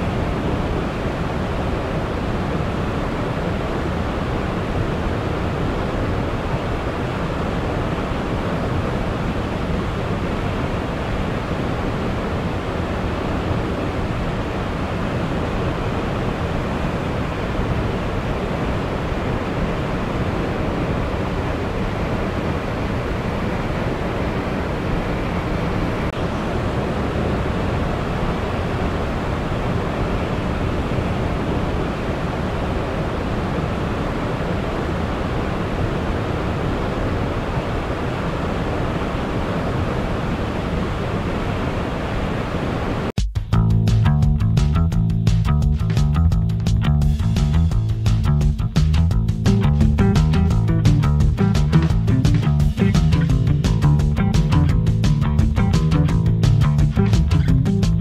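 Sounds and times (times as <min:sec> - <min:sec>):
waterfall crashing: 0:00.0 - 0:43.1.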